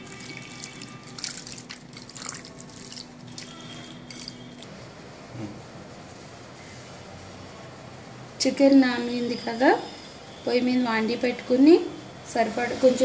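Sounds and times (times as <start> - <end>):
hand squelching meat in marinade: 0.0 - 4.7.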